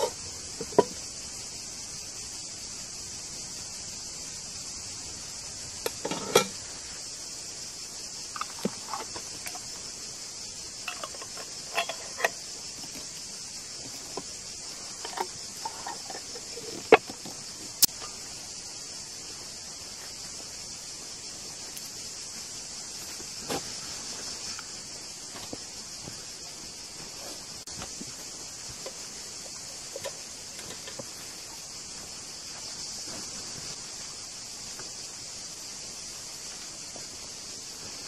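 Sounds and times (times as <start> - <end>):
insects chirping: 0.0 - 38.0
glass jars and spoons clinking: 10.9 - 12.4.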